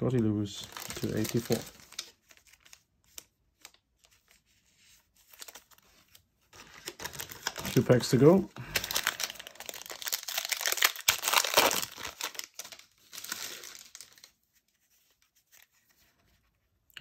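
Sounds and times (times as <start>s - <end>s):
wrapper tearing and crinkling: 0.6s - 3.8s, 6.5s - 14.4s.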